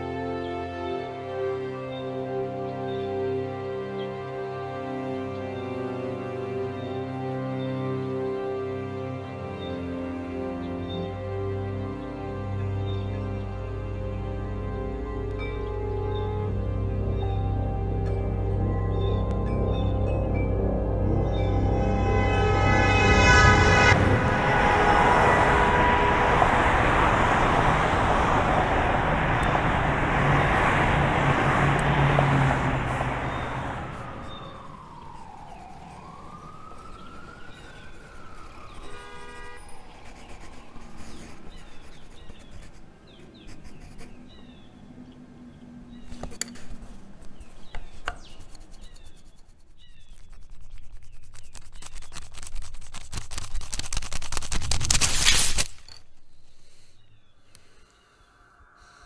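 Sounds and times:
siren-like sliding tone: 20.8 - 28.7, 32.0 - 42.5
rough noise: 21.3 - 36.3
loud rushing noise: 21.4 - 36.4
faint chirps: 56.2 - 59.0.

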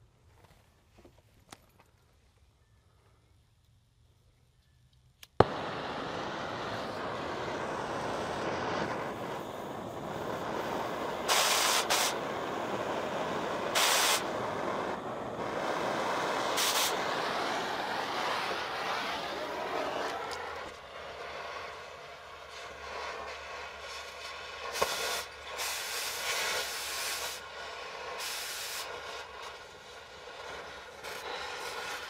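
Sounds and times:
torch lighting pop: 5.2 - 20.8, 24.6 - 27.4
short gas blasts: 5.4 - 32.0
torch flame hissing: 5.4 - 32.0.

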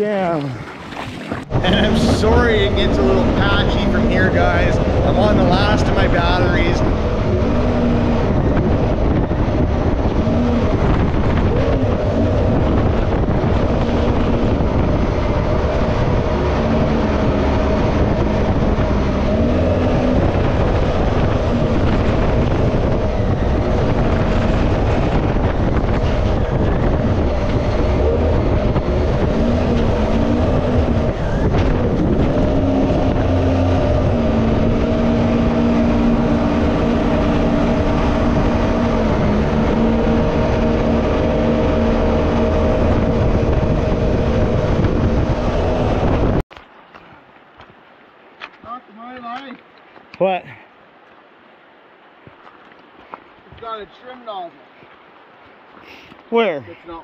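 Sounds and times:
boat engine running: 0.0 - 46.6
rushing water: 0.0 - 57.0
wind: 0.0 - 57.0.

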